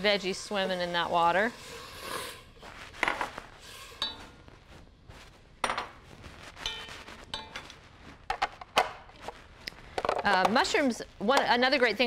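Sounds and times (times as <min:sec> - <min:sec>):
dishes and utensils clinking: 0:04.0 - 0:04.4, 0:06.6 - 0:07.8.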